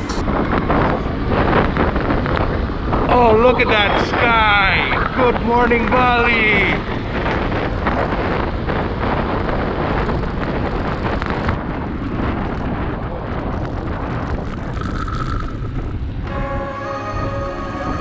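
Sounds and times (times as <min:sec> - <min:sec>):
wind rushing over microphone: 0:00.0 - 0:18.0
faint high tone: 0:16.3 - 0:18.0.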